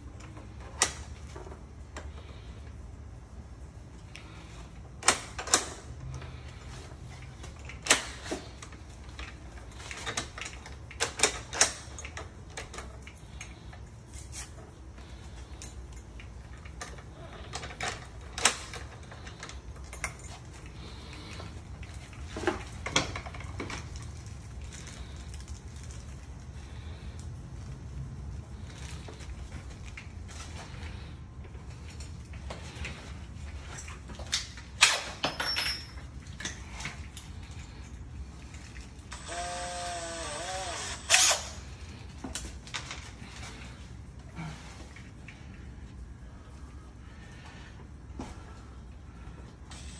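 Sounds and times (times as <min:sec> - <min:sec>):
cordless drill whining: 0:39.1 - 0:41.6.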